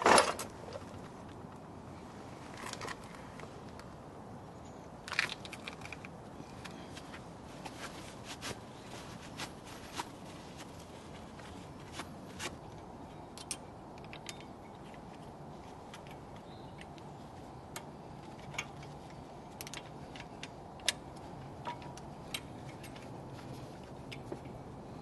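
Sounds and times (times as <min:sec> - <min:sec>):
steady low hiss: 0:00.0 - 0:25.0
light metallic clicks and taps: 0:12.6 - 0:24.6.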